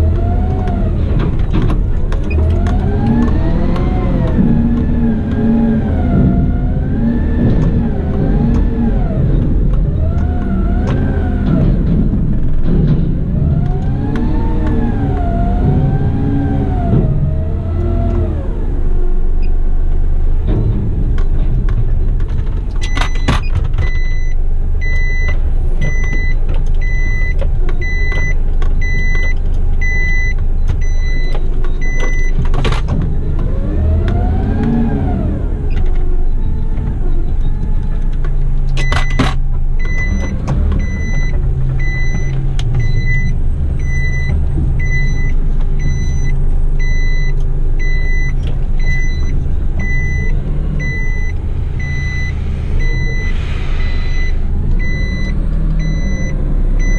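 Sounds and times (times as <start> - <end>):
diesel engine running: 0.0 - 56.9
truck reversing alarm beeping: 22.8 - 32.4, 38.8 - 56.9.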